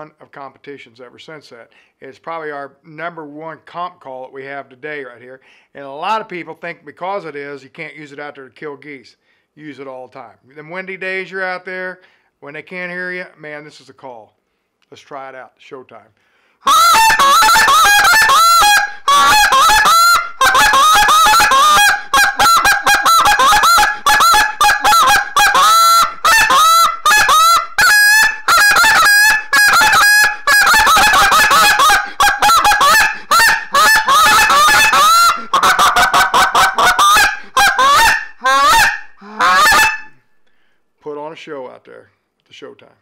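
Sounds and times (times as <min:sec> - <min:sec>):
goose call honking: 0:16.7 - 0:40.2.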